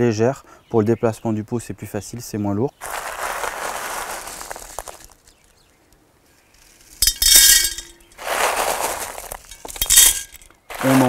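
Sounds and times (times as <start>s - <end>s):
clay pebbles rattling: 2.8s - 5.4s, 6.6s - 11.0s.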